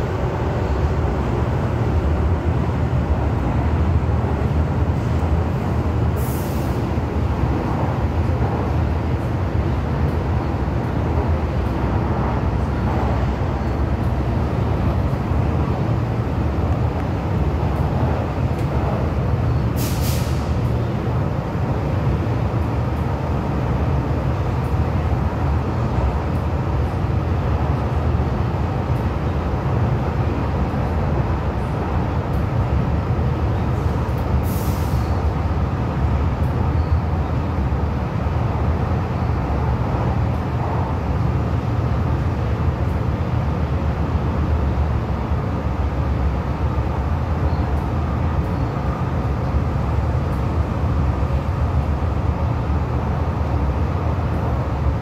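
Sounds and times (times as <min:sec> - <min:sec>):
train rumbling on track: 0:00.0 - 0:55.0
brief hisses: 0:19.8 - 0:20.6.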